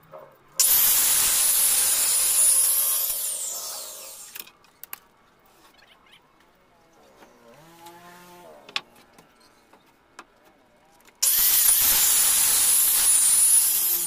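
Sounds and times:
circular saw motor whining: 0.6 - 4.4, 11.2 - 14.0
saw blade winding down: 0.6 - 4.4, 11.2 - 14.0.

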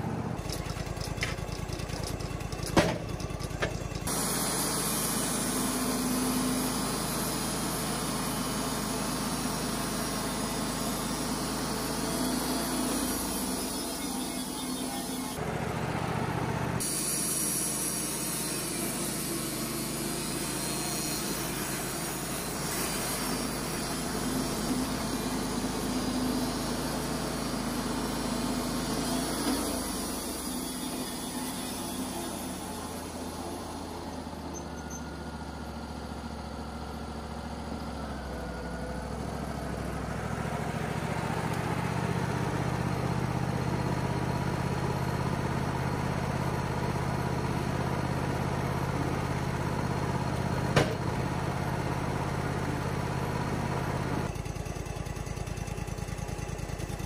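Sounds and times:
sawmill engine running: 0.0 - 57.0
bandsaw blade cutting log: 2.7 - 15.4, 16.8 - 34.5.

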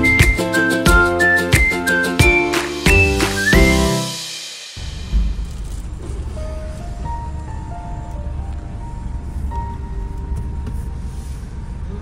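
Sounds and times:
steady low rumble: 4.8 - 12.0.

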